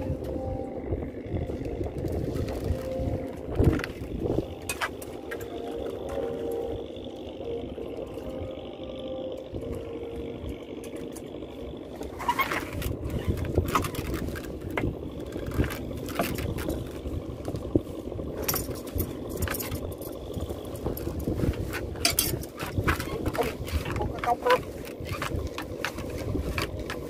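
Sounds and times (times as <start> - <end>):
boat motor running: 0.0 - 27.0
knocks clatter and scrapes: 20.8 - 27.0.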